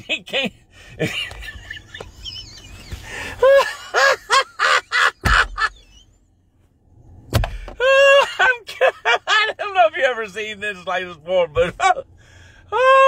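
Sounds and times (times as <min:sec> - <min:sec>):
man's high-pitched breathless cries: 0:12.0 - 0:13.0.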